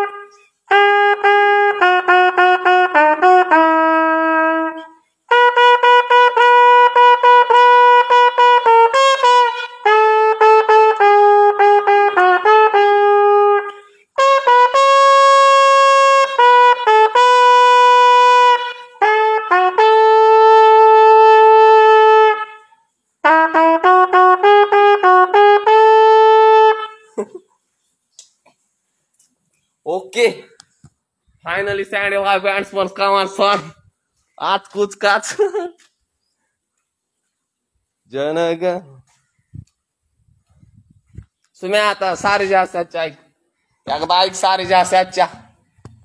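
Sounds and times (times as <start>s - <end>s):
trumpet playing a melody: 0.0s - 27.2s.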